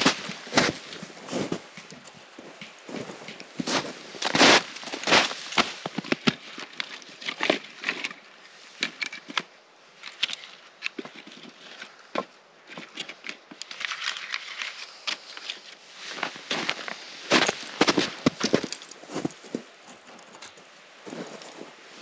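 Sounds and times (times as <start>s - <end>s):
boots crunching in snow: 0.0s - 6.4s, 15.9s - 19.7s, 21.0s - 22.0s.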